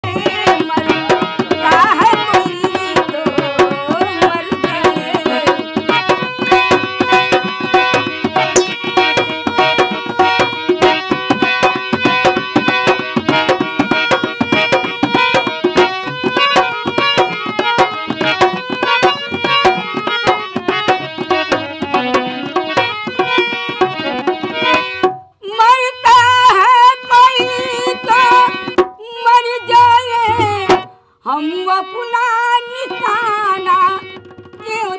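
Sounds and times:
old woman singing: 0.0s - 6.3s, 25.4s - 34.9s
dholak drumming: 0.0s - 34.9s
held keyboard notes: 0.0s - 34.9s.

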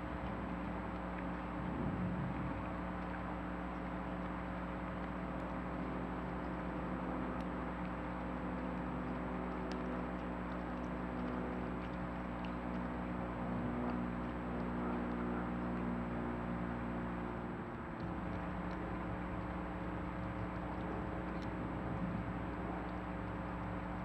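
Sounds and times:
faint ticks: 0.0s - 15.9s, 17.7s - 24.0s
low hum and hiss: 0.0s - 24.0s.

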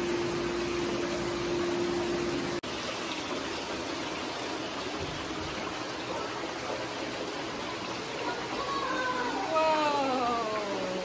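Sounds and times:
water running and trickling: 0.0s - 11.0s.

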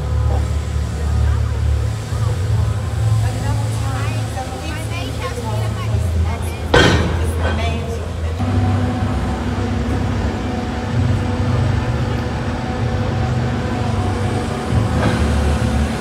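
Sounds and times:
excavator diesel engine drone: 0.0s - 16.0s
hydraulics humming: 0.0s - 16.0s.

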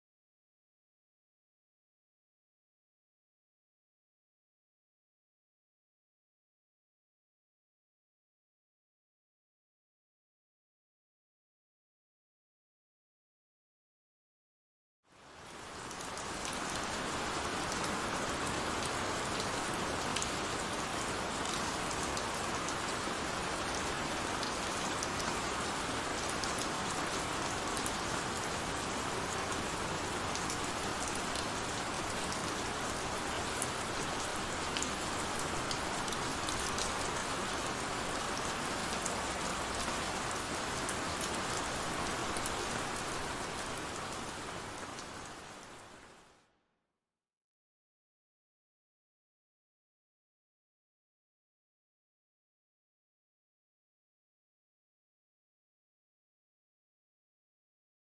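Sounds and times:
heavy rain: 15.1s - 46.3s.

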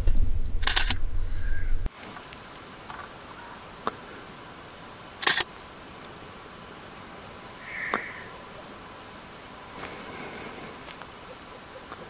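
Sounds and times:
camera shutter clicks: 0.6s - 1.0s, 5.2s - 5.5s.

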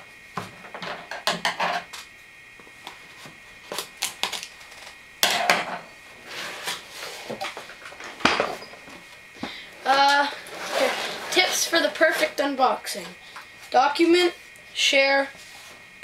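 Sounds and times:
cardboard tearing scrape: 10.3s - 12.4s.

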